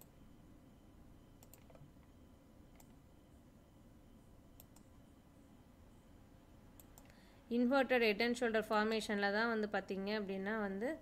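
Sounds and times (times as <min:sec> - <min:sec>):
computer mouse clicks: 0:01.4 - 0:01.9, 0:02.7 - 0:03.0, 0:04.6 - 0:04.9, 0:06.8 - 0:07.2.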